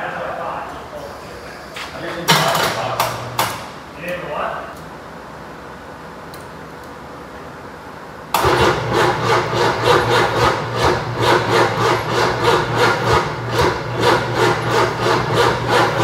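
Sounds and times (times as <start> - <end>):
diesel engine starter cranking: 8.4 - 16.0.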